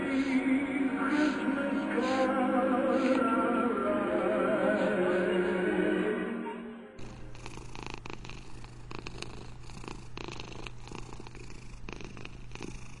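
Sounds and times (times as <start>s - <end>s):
cat purring: 1.0s - 3.3s, 7.0s - 13.0s.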